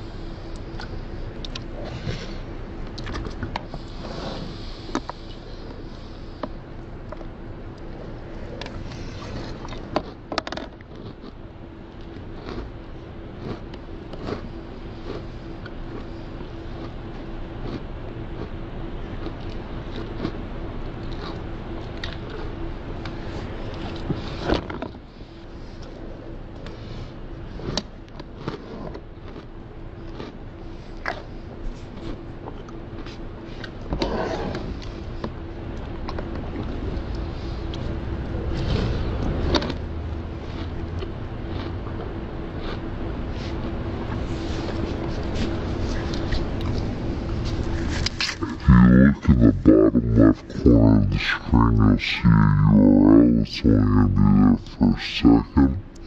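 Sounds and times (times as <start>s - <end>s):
faint steady hum: 0.0s - 56.0s
cereal crunching and chewing: 8.6s - 24.2s, 27.6s - 33.8s, 38.5s - 42.9s.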